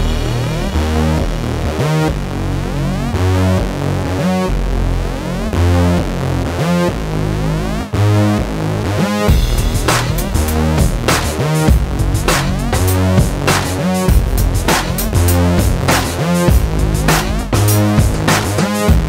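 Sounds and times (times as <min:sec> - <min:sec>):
rising synth sweep: 0:00.0 - 0:04.0
electronic music with heavy bass: 0:00.0 - 0:19.0.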